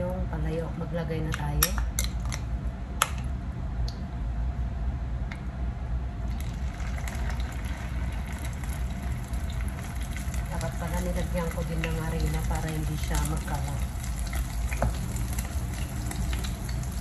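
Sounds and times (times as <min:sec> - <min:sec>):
hot oil sizzling: 0:06.3 - 0:17.0.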